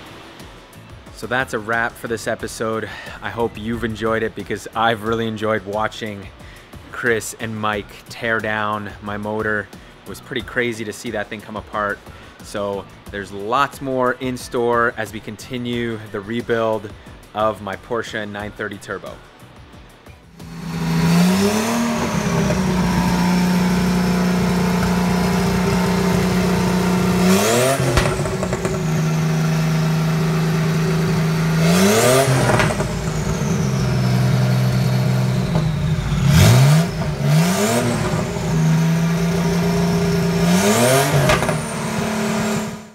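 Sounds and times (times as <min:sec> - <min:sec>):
car engine idling and revving: 0:20.4 - 0:42.9
high turbo whine: 0:20.4 - 0:42.9.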